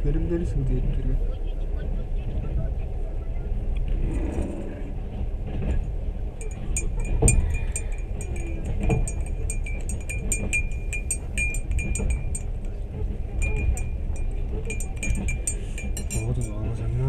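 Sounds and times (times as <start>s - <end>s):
train carriage rumbling: 0.0s - 17.0s
metallic clinking and jingling: 6.4s - 12.8s, 13.4s - 16.8s.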